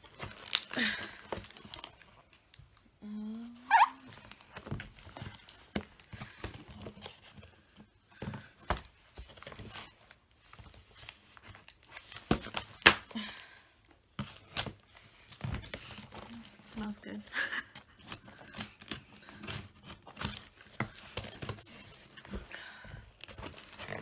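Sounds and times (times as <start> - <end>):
packaging tearing and crumpling: 0.0 - 2.4, 10.9 - 13.2, 17.9 - 22.1.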